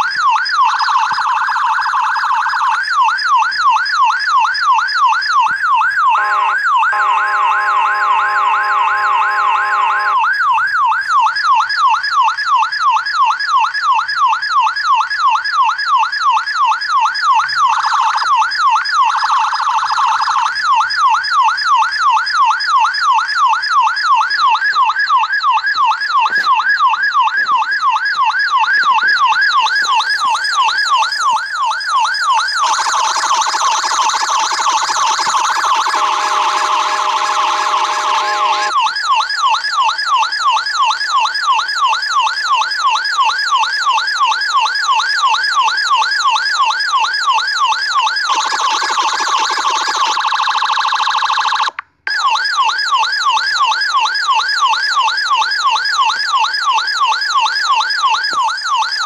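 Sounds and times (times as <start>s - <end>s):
police siren yelping: 0.0s - 59.0s
steady horn blast: 6.2s - 10.2s.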